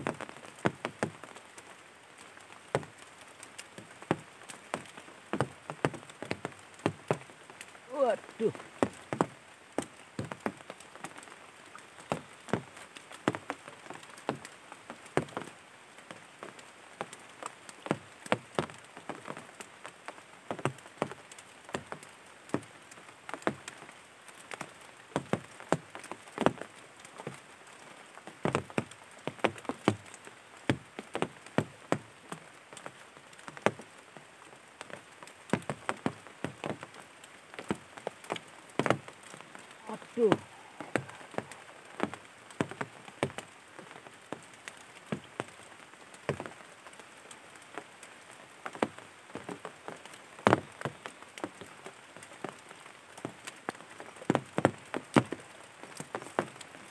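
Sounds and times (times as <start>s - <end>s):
faint steady hiss: 0.0s - 56.9s
raindrops ticking: 0.0s - 56.9s.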